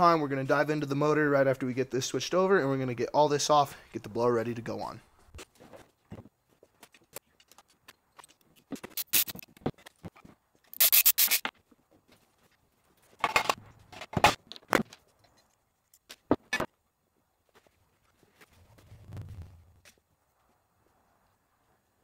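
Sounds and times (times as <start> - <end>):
metal parts scraping: 7.4 - 9.5, 10.7 - 11.5.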